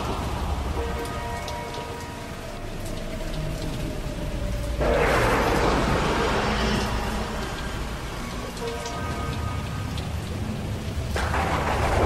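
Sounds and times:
rain falling: 0:00.0 - 0:12.0
rolling thunder rumble: 0:03.9 - 0:12.0
loud thunderclap: 0:11.2 - 0:12.0.

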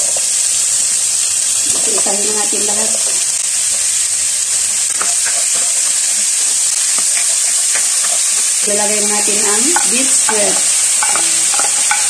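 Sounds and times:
vegetables sizzling in hot oil: 0:00.0 - 0:12.0
spatula knocking in pan: 0:04.9 - 0:06.0, 0:06.9 - 0:08.6, 0:09.3 - 0:12.0.

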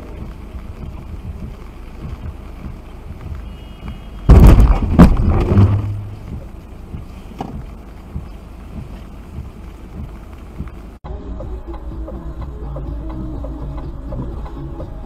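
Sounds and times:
car knocking and rattling: 0:00.0 - 0:11.0
car driving on wet road: 0:00.0 - 0:15.0.

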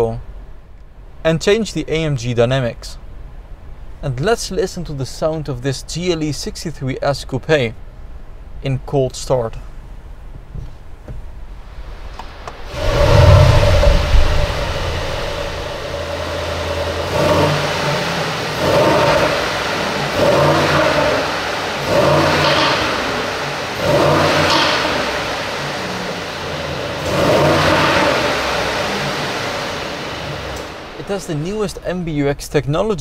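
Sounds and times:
car engine starting and idling: 0:09.7 - 0:33.0
engine revving in short blips: 0:12.2 - 0:31.4.

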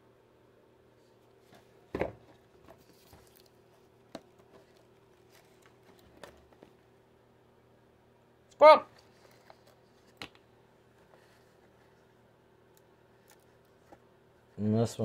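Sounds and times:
box thump: 0:01.9 - 0:02.4.

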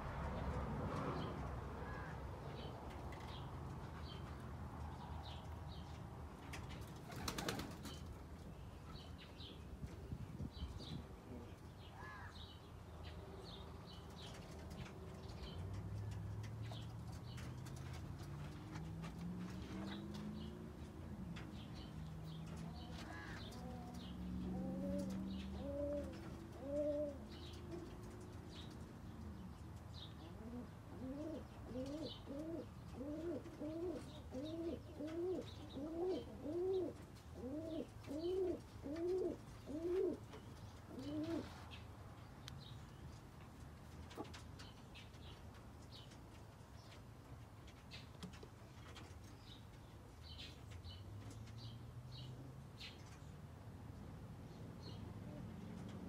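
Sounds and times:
small birds chirping: 0:01.9 - 0:53.5
pigeon cooing: 0:23.1 - 0:28.1, 0:30.3 - 0:40.3, 0:40.9 - 0:41.6.

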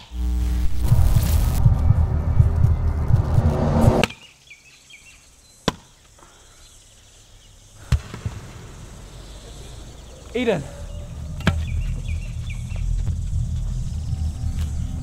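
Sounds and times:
faint bird chirps: 0:08.8 - 0:15.0.

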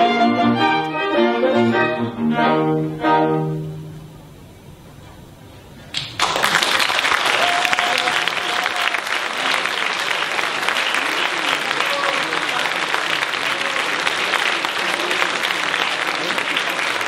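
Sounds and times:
string and bassoon quartet playing: 0:00.0 - 0:04.5
audience applause: 0:05.9 - 0:17.0.

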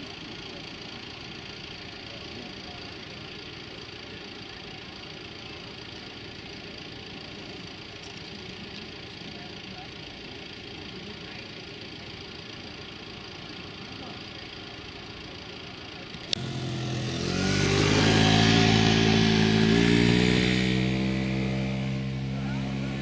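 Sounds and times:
faint outdoor background: 0:00.0 - 0:23.0
road noise: 0:13.1 - 0:23.0
vehicle engine passing: 0:16.3 - 0:23.0.

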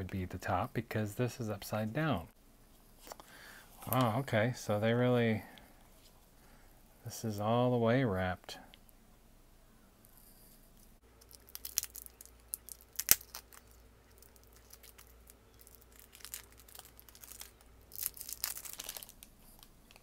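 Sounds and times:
cellophane crackling and crinkling: 0:11.2 - 0:20.0.

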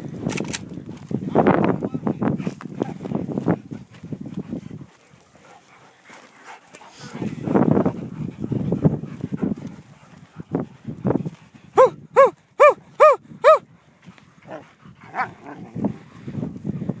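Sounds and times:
dog barking: 0:11.8 - 0:13.6.

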